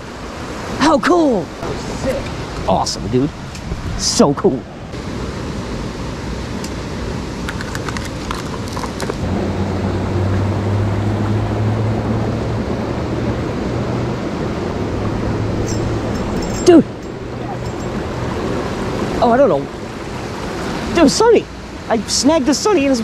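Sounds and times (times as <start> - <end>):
creek water rushing over rocks: 0.0 - 23.0
steady low hum: 12.8 - 19.0.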